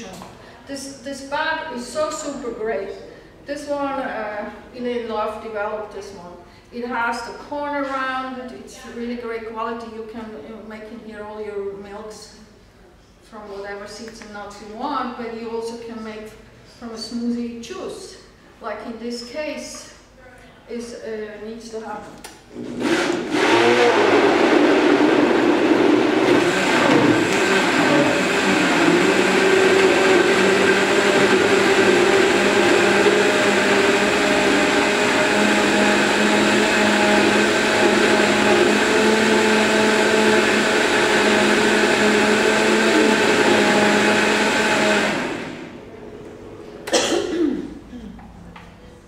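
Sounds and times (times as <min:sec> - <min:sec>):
countertop blender running: 0:22.5 - 0:45.8.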